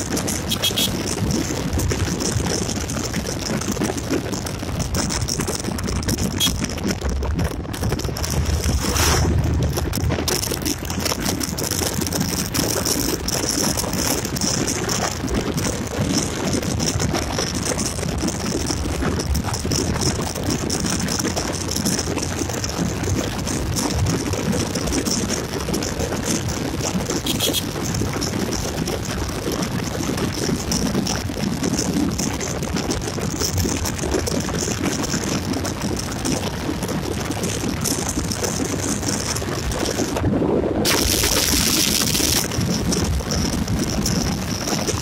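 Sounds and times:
motorcycle road noise: 0:00.0 - 0:45.0
wind noise on microphone: 0:00.0 - 0:45.0.

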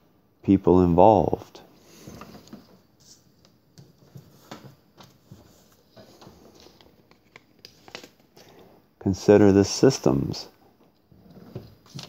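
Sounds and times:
paper rustling: 0:01.9 - 0:08.6, 0:11.7 - 0:12.0.

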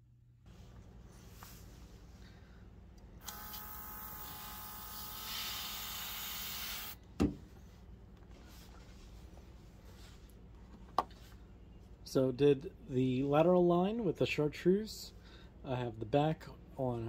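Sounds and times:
airbrush compressor whining: 0:03.2 - 0:07.0.

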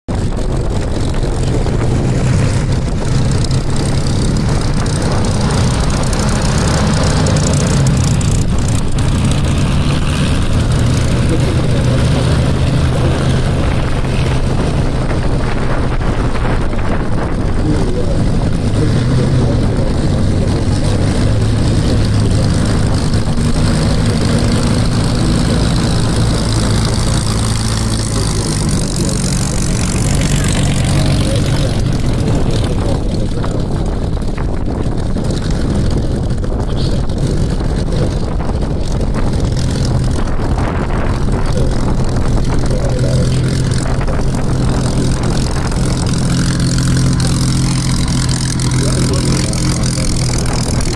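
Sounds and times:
propeller plane piston engine droning: 0:00.1 - 0:50.9.

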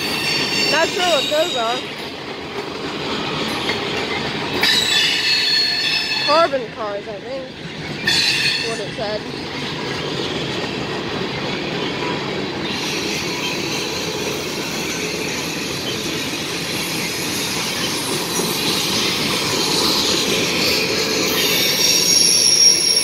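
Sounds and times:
metallic wheel squeal: 0:00.0 - 0:01.9, 0:04.6 - 0:06.5, 0:12.6 - 0:23.0
train wheels rumbling on rail: 0:00.0 - 0:23.0.

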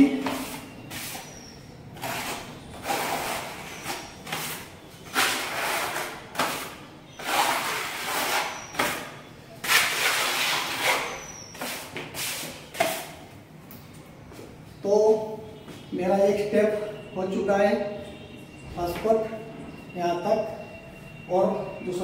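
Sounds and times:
putty knife scraping wall: 0:02.0 - 0:13.2.

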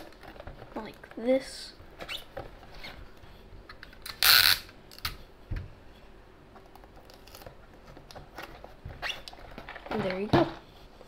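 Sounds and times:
tape ripping off dispenser: 0:04.0 - 0:05.1.

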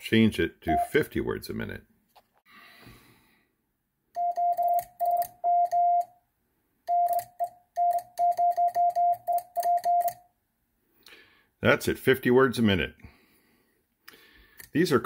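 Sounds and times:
morse code sidetone beeps: 0:04.2 - 0:06.1, 0:06.9 - 0:10.2.

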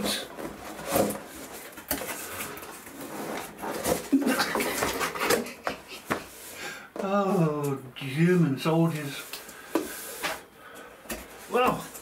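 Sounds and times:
cardboard tray scraping out of sleeve: 0:02.2 - 0:05.3.

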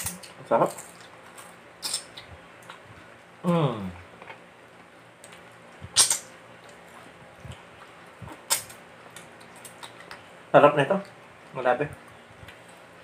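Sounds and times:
lip smacks: 0:05.3 - 0:06.8.

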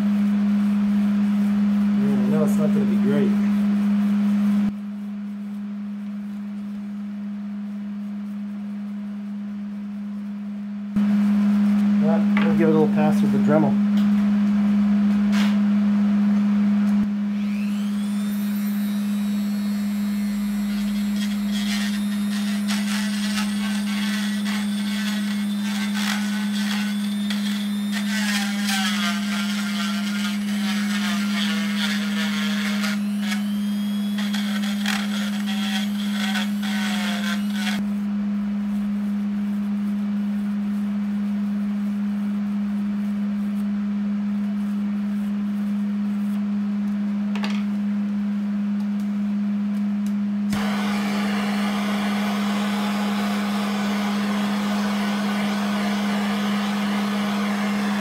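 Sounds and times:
steady low hum: 0:00.0 - 0:28.6, 0:29.2 - 0:58.0
rotary tool whine: 0:17.3 - 0:37.8, 0:50.5 - 0:58.0.

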